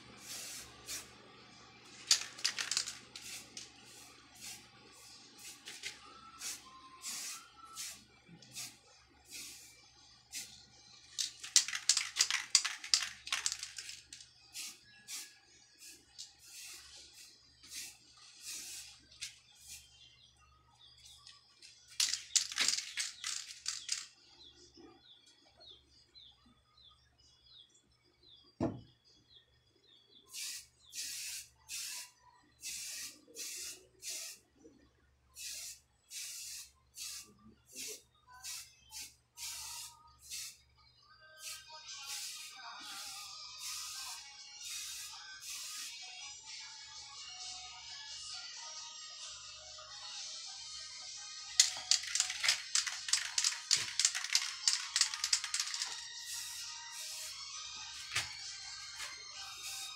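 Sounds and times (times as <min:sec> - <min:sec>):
aerosol spray can hissing: 0:00.2 - 0:01.1, 0:02.1 - 0:04.6, 0:05.4 - 0:09.7, 0:10.3 - 0:10.5, 0:11.2 - 0:19.9, 0:30.3 - 0:34.4, 0:35.4 - 0:40.6, 0:41.4 - 0:45.9, 0:51.6 - 0:57.4.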